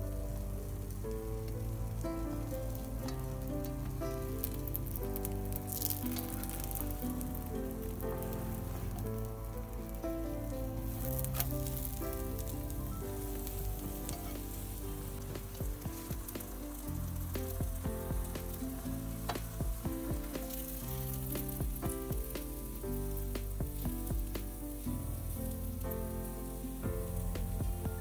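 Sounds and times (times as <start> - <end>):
background music: 0.0 - 28.0
egg frying sizzle: 0.0 - 28.0.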